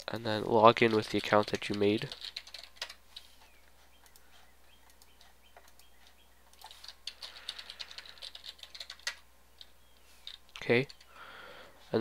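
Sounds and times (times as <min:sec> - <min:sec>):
keyboard typing: 0:00.0 - 0:03.3, 0:04.8 - 0:11.1.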